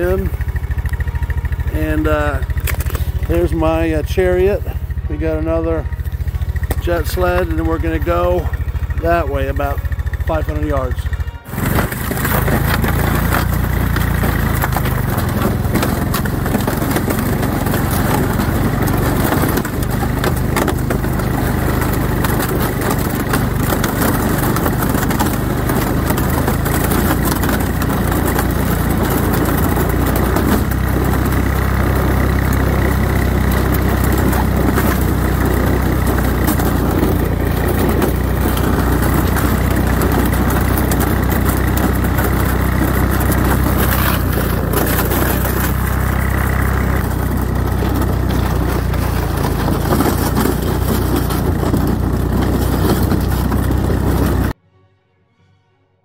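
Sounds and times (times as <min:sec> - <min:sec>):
atv engine running: 0:00.0 - 0:54.6.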